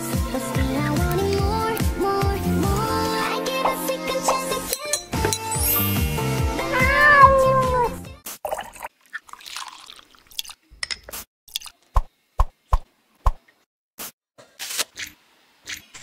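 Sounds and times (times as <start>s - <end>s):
liquid pouring into glass jug: 8.4s - 10.6s.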